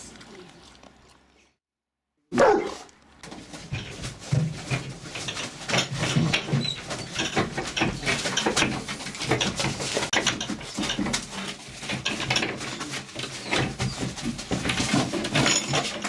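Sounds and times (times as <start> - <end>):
puppy claws scratching wooden boards: 3.2 - 16.0.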